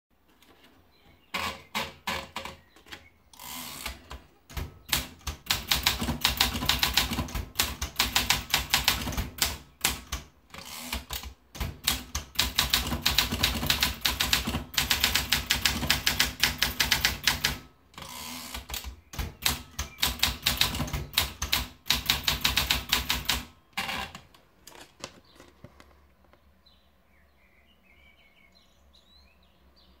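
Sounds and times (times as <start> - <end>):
typewriter keystrokes: 3.8 - 17.7, 18.5 - 23.9.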